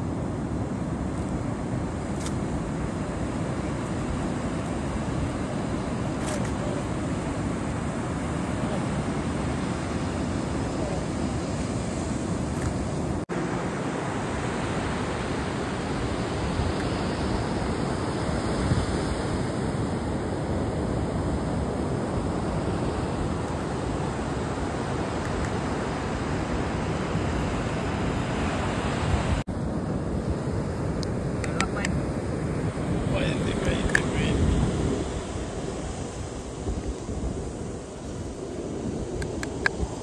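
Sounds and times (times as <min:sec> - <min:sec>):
heavy surf breaking: 0:21.7 - 0:40.0
wind buffeting microphone: 0:24.6 - 0:40.0.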